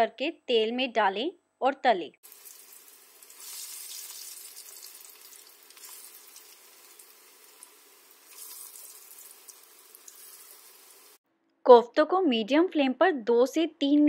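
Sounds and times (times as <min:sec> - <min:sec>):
balls deep-frying in hot oil: 0:02.2 - 0:11.2.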